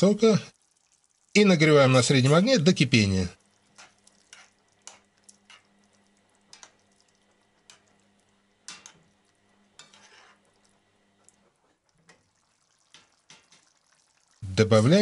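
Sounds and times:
spoon scraping pan: 0:03.6 - 0:05.8, 0:08.6 - 0:09.1, 0:09.7 - 0:10.6, 0:11.5 - 0:13.9
metal spoon clinking on pan: 0:08.7 - 0:09.0.

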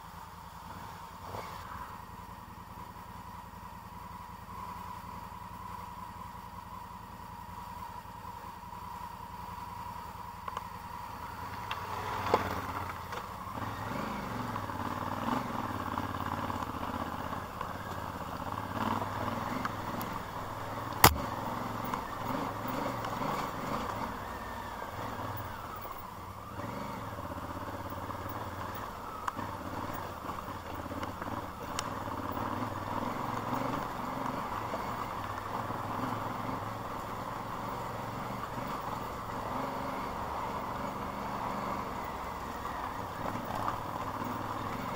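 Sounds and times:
vehicle engine running: 0:00.0 - 0:44.9.

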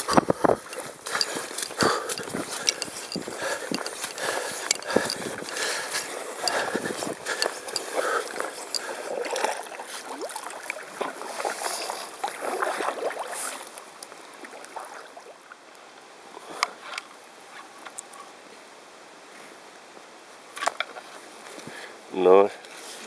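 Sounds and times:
canoe scraping over dry grass: 0:00.0 - 0:10.1
paddling on calm water: 0:00.0 - 0:23.0.

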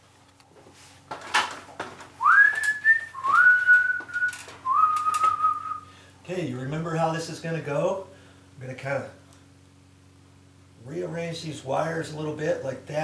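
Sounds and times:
man whistling sliding notes: 0:02.2 - 0:05.9.

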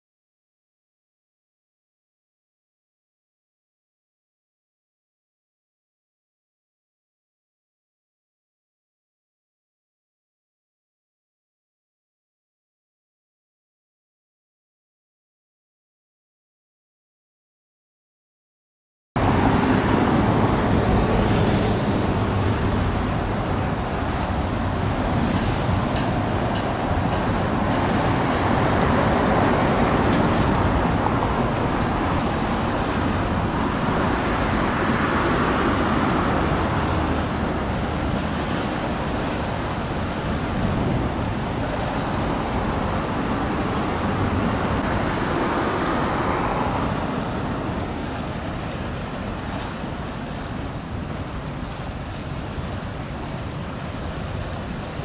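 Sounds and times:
steady outdoor rumble: 0:19.2 - 0:55.0
wind noise on microphone: 0:19.2 - 0:55.0.

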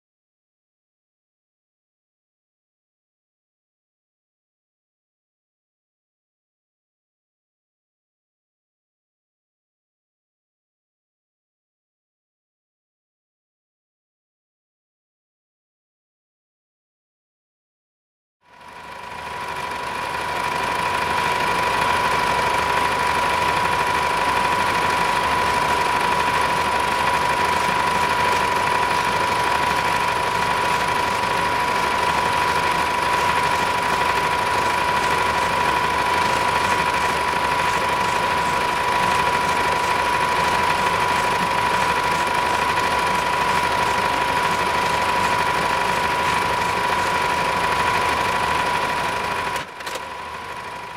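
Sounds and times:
machine drone with high whine: 0:18.5 - 0:50.9.

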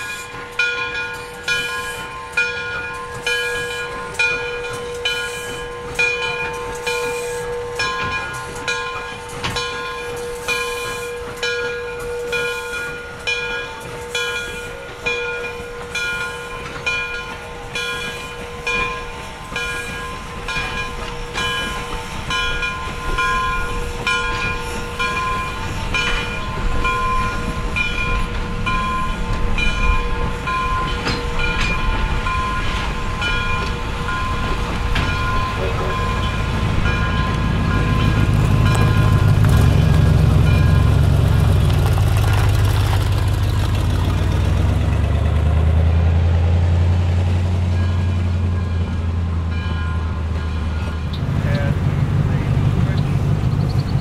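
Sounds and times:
locomotive bell ringing: 0:00.0 - 0:45.0, 0:46.9 - 0:54.0
passenger cars rumbling past: 0:34.6 - 0:54.0.

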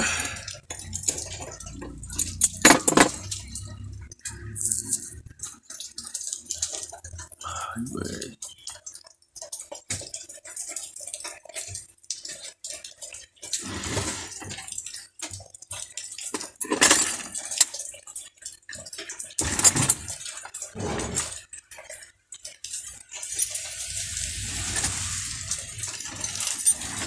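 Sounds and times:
metal parts clicking and clinking: 0:00.0 - 0:07.2, 0:13.5 - 0:27.0.

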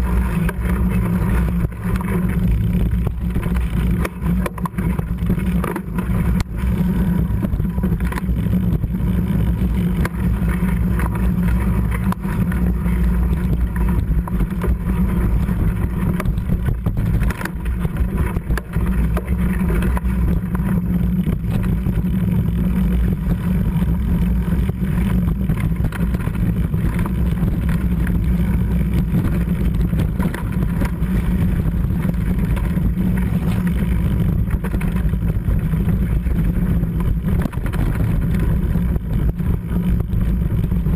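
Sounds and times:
bike rattling and knocking: 0:00.0 - 0:40.9
wind rumble on microphone: 0:00.0 - 0:40.9.

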